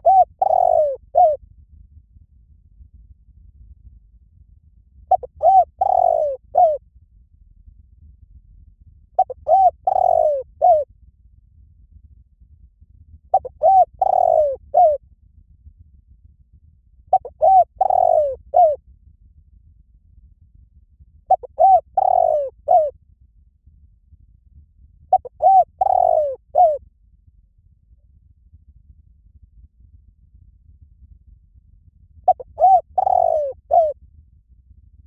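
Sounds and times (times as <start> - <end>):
dove cooing: 0.0 - 1.4, 5.1 - 6.8, 9.2 - 10.8, 13.3 - 15.0, 17.1 - 18.8, 21.3 - 22.9, 25.1 - 26.8, 32.3 - 34.0.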